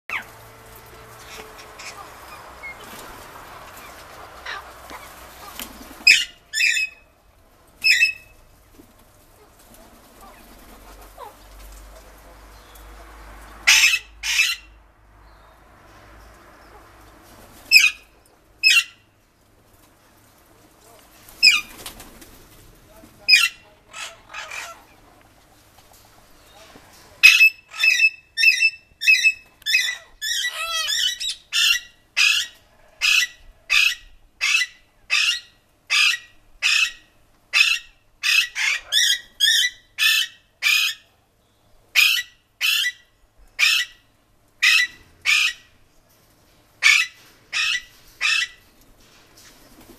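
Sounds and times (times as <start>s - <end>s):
parakeets squawking: 0.1s - 7.0s, 13.6s - 14.8s, 17.7s - 19.0s, 23.3s - 25.1s, 27.2s - 41.0s, 42.0s - 43.0s, 44.6s - 45.7s, 46.8s - 48.6s.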